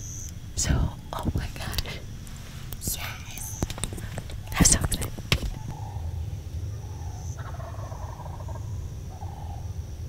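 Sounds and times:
turkey gobbling: 0:05.4 - 0:06.2, 0:06.8 - 0:09.6.

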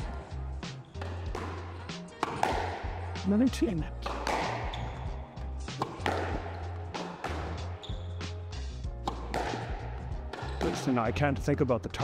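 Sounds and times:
background music: 0:00.0 - 0:12.0
squash ball knocks: 0:01.0 - 0:03.1, 0:04.0 - 0:04.7, 0:05.7 - 0:07.6, 0:09.0 - 0:11.0.

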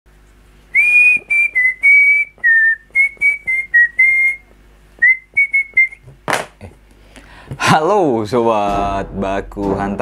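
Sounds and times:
man whistling: 0:00.7 - 0:06.1.

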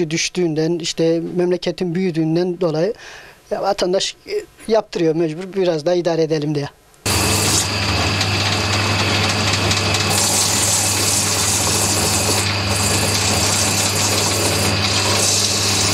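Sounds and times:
buffing machine motor hum and whir: 0:07.1 - 0:15.9.

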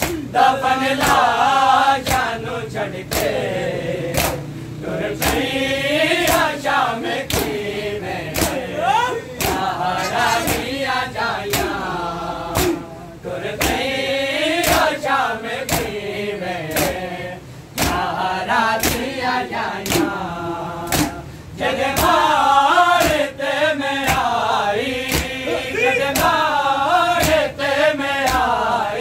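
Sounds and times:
hands slapping chests: 0:00.0 - 0:00.3, 0:04.2 - 0:04.5, 0:06.2 - 0:06.6, 0:08.3 - 0:10.8, 0:12.6 - 0:12.9, 0:17.8 - 0:18.1, 0:18.8 - 0:19.2, 0:20.9 - 0:21.2, 0:23.0 - 0:23.3, 0:25.0 - 0:25.4, 0:26.0 - 0:26.4, 0:28.2 - 0:28.6
men chanting together: 0:00.0 - 0:29.0.

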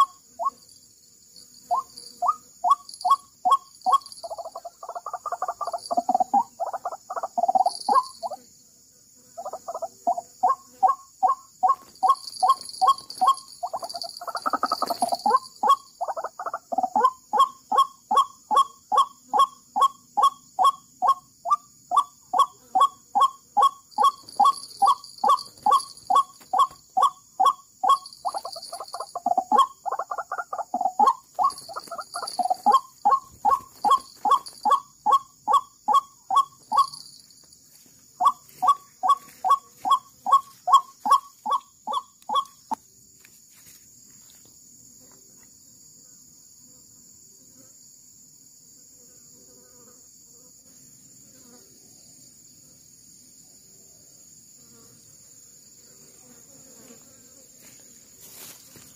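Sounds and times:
insects droning: 0:00.0 - 0:58.9
bird calling repeated notes: 0:01.7 - 0:08.4, 0:09.4 - 0:37.2, 0:38.2 - 0:42.8.

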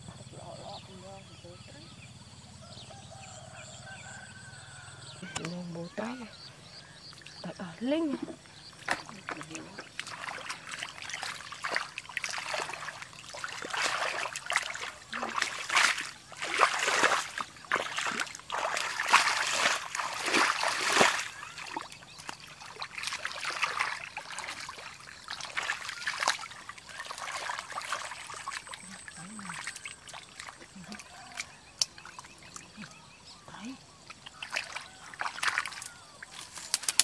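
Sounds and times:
muddy water splashing: 0:02.6 - 0:37.0.

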